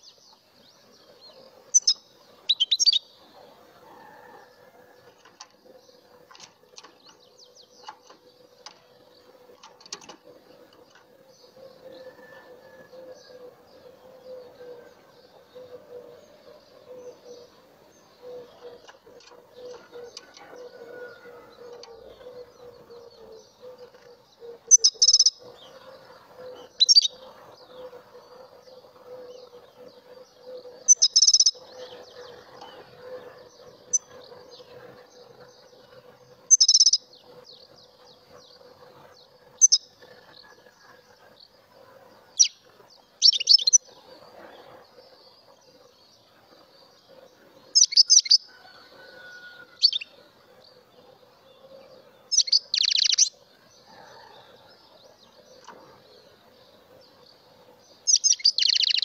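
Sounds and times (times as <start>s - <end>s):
sharp bursts of birdsong: 1.3s - 3.6s, 16.2s - 37.2s, 38.0s - 54.7s, 55.6s - 59.0s
goldfinch twittering: 1.7s - 3.0s, 52.4s - 53.3s, 58.1s - 59.0s.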